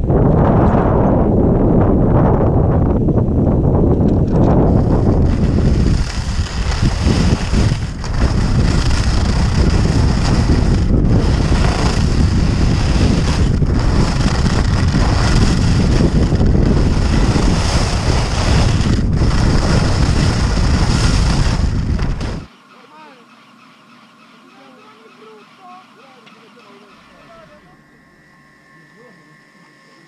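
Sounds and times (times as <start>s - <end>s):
wind rushing over microphone: 0.0s - 22.5s.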